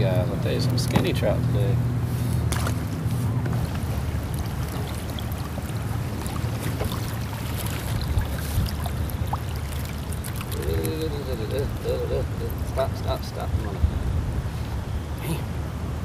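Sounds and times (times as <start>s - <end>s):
steady low rumble: 0.0s - 16.0s
water lapping against kayak hull: 2.0s - 15.1s.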